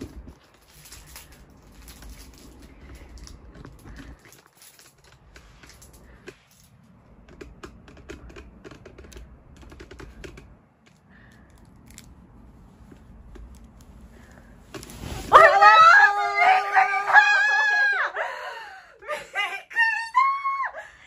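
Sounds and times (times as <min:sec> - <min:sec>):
duvet rustling: 0:12.4 - 0:17.8.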